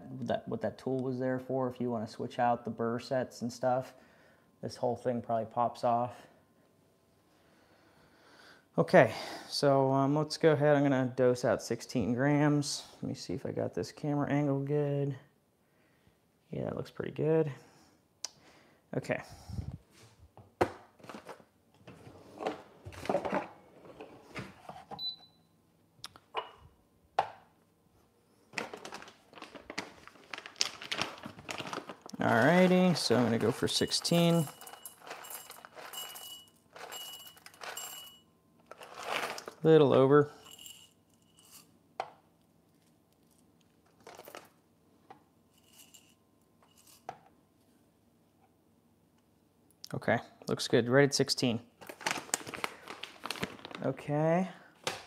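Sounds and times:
bag of coffee beans rustling: 28.5s - 41.7s, 44.0s - 44.5s, 51.8s - 54.0s.

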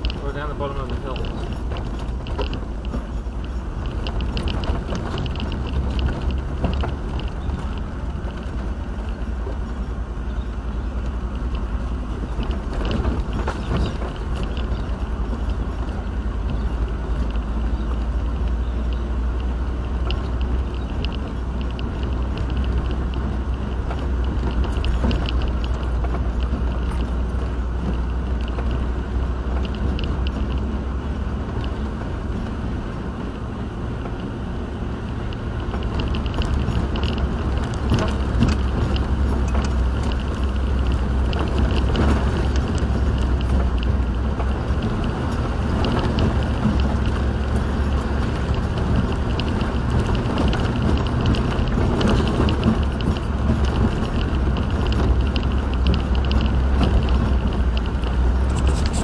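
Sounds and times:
car road noise rumble: 0.0s - 59.0s.

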